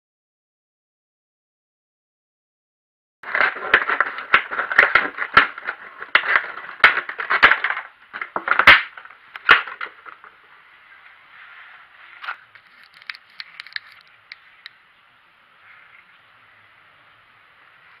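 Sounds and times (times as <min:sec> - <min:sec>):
plastic bottle crinkling: 0:12.2 - 0:14.8.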